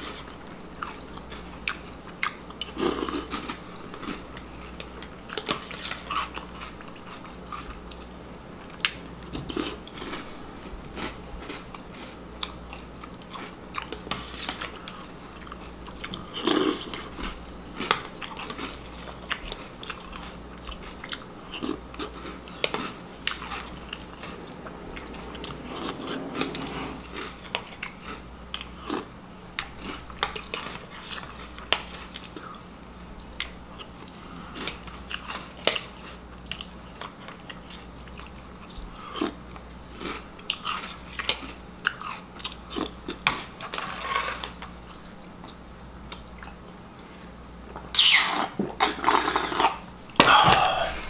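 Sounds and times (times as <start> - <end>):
cereal crunching and chewing: 0.0 - 25.6, 26.2 - 46.7
slurping milk: 21.6 - 28.2.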